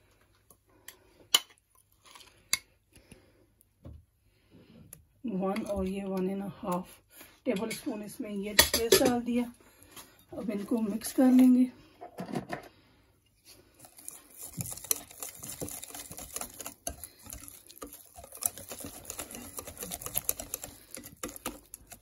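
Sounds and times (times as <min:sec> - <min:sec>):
whisk clicking against glass bowl: 0:14.6 - 0:22.0.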